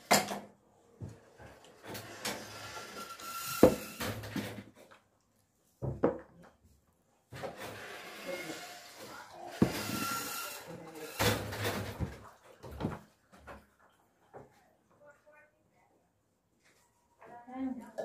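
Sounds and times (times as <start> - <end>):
tableware scuffing on table: 3.6 - 3.8.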